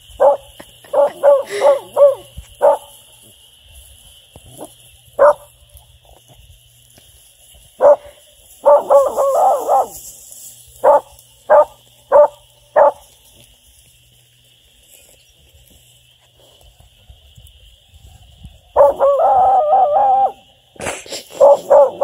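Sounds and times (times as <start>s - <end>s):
puppy barking: 0.2s - 2.9s, 5.2s - 5.5s, 7.8s - 10.0s, 10.8s - 13.0s, 18.8s - 20.4s, 21.4s - 22.0s.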